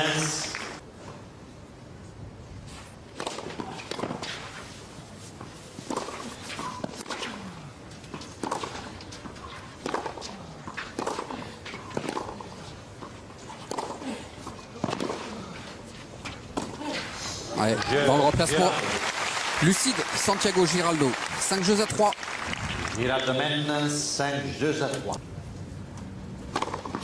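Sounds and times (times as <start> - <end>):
tennis balls hit by rackets: 3.1 - 4.7, 5.4 - 17.1, 26.4 - 27.0.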